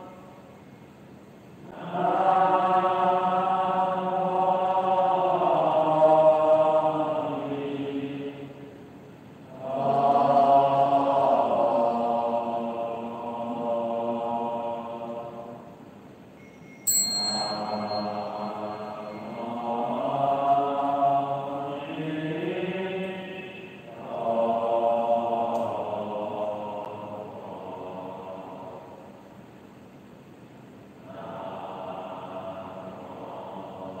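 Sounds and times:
devotional chanting: 0.0 - 0.6, 1.6 - 15.9, 16.9 - 29.4, 31.0 - 34.0
sharp struck ringing sound: 16.6 - 19.5.

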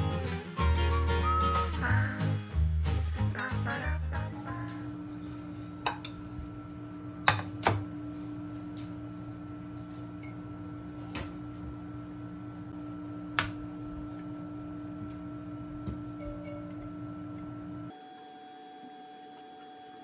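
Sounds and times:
steady mechanical hum: 4.1 - 20.0.

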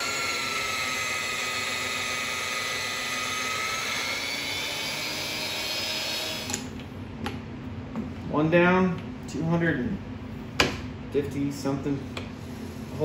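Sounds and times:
drill press motor whine: 0.0 - 6.8.

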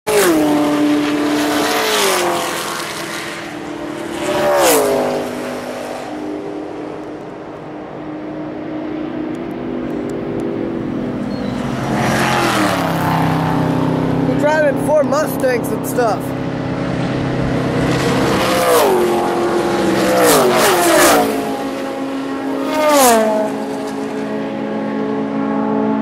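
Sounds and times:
distant race car engines: 0.1 - 26.0
race cars passing at speed: 0.1 - 26.0.

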